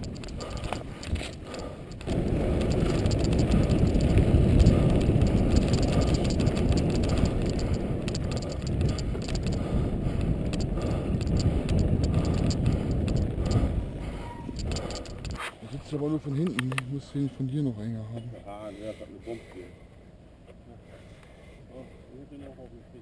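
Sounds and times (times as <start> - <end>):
bike rattling over bumps: 0.0 - 15.4
bike tyres rolling on dirt: 0.0 - 15.4
wind buffeting microphone: 0.0 - 15.4.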